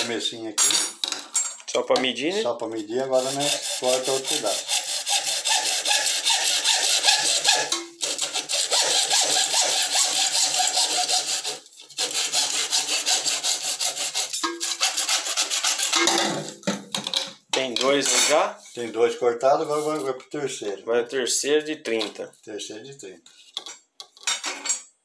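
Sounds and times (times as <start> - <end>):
hacksaw cutting plastic pipe: 2.8 - 16.5.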